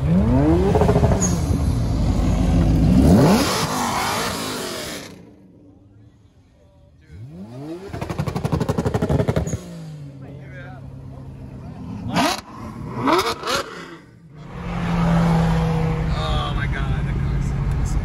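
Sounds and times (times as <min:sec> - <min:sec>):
car accelerating with pulsing exhaust: 0:00.0 - 0:05.4, 0:07.1 - 0:10.2
car engine revving and shifting: 0:00.0 - 0:05.4, 0:07.1 - 0:10.2, 0:11.8 - 0:16.2.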